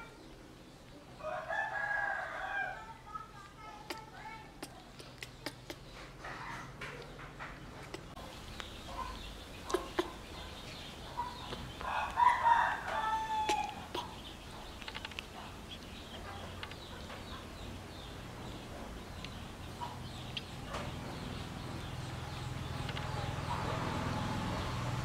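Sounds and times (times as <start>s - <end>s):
small clicks: 14.8s - 15.9s, 16.6s - 16.9s, 22.8s - 23.2s.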